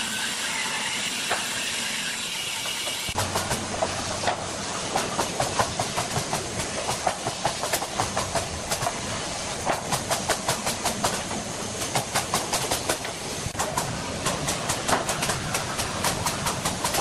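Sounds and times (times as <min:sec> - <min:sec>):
steady hiss: 0:03.1 - 0:17.0
workshop knocks and clicks: 0:03.2 - 0:09.0, 0:09.6 - 0:17.0.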